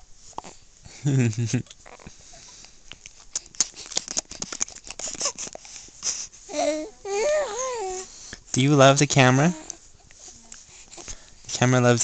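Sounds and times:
baby cooing: 1.8s - 2.1s, 6.5s - 8.1s
baby babbling: 6.5s - 8.1s.

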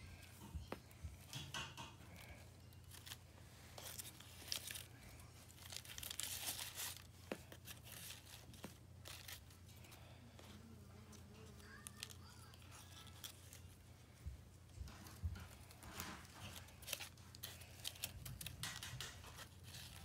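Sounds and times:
plastic ribbon crinkling: 2.2s - 9.9s, 11.4s - 13.8s, 15.0s - 20.0s.

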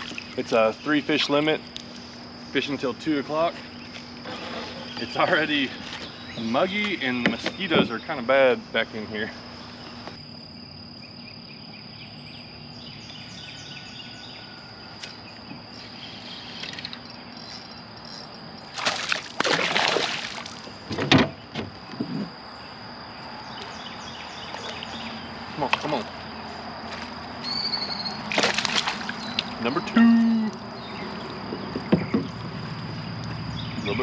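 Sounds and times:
insects calling: 0.0s - 34.0s
fish splashing at surface: 18.7s - 20.6s, 28.3s - 29.4s.

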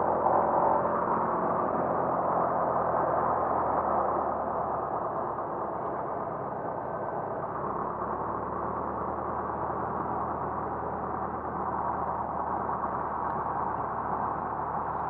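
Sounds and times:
propeller aircraft engine: 0.0s - 15.0s.

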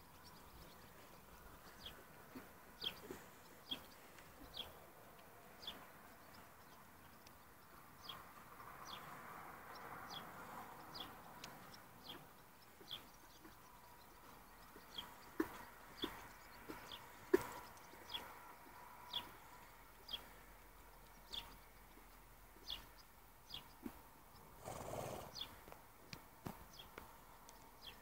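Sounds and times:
faint bird chirping: 0.0s - 28.0s.

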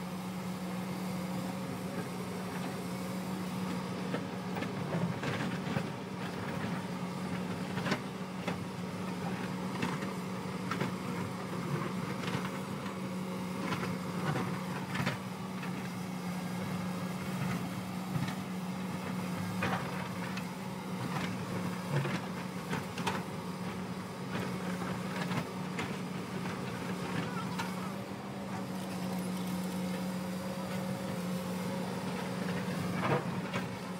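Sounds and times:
diesel engine running: 0.0s - 33.9s.

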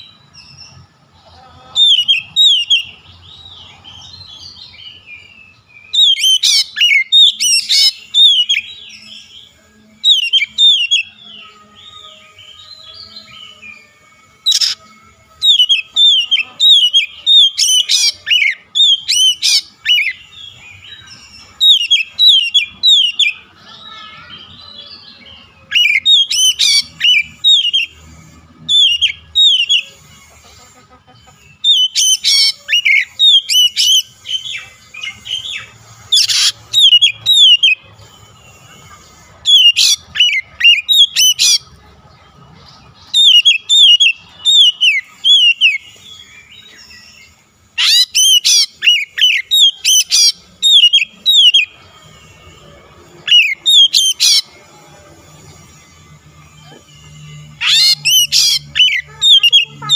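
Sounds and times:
bird singing whistled phrases: 14.4s - 28.0s, 31.6s - 37.9s, 43.1s - 51.8s, 53.2s - 54.5s.

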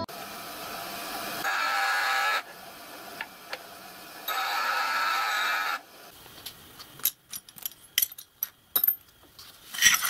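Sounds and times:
bench grinder grinding metal: 1.4s - 2.5s
small metal parts clinking: 6.9s - 10.0s.

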